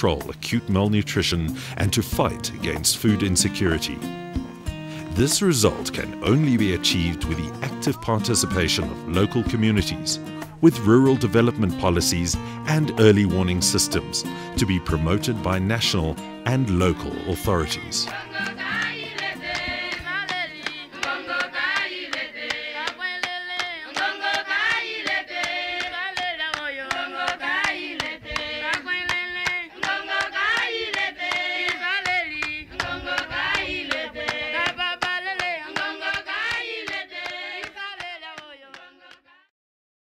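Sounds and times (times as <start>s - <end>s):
rhythmic hand clapping: 3.0s - 10.6s, 16.9s - 39.2s
group of voices singing: 5.4s - 10.7s, 16.5s - 39.5s.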